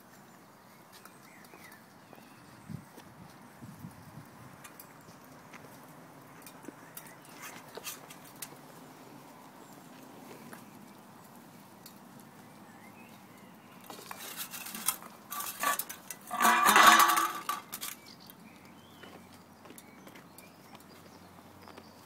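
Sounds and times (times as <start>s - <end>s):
loud scraping rattle: 14.1s - 18.0s
puppies playing with metal bowl: 14.2s - 18.0s.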